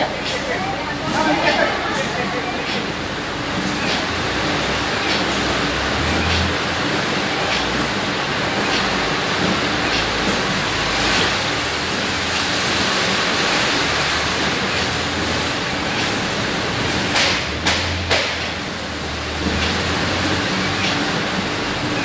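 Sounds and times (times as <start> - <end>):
sharp clacks: 3.6 - 4.2, 5.0 - 6.6, 7.3 - 10.5, 17.0 - 18.6, 19.4 - 21.2.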